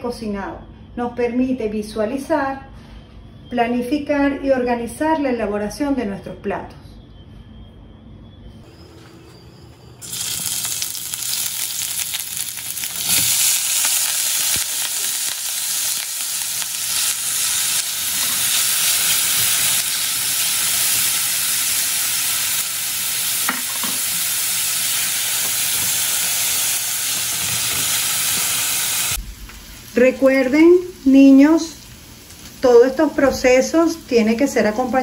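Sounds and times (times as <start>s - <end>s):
onion sizzling in frying pan: 10.0s - 35.0s.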